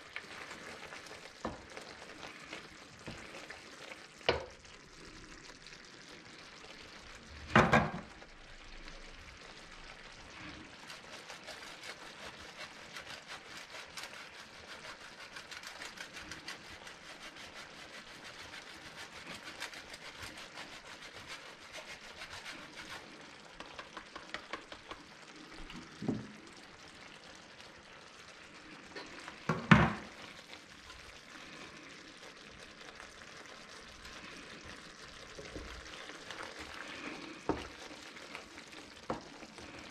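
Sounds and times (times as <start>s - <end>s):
sauce simmering in frying pan: 0.0s - 39.9s
cheese grating: 10.6s - 23.2s.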